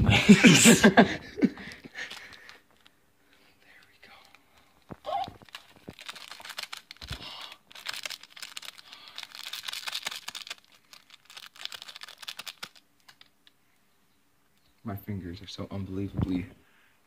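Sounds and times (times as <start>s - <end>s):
foil packet crinkling: 1.6s - 13.6s.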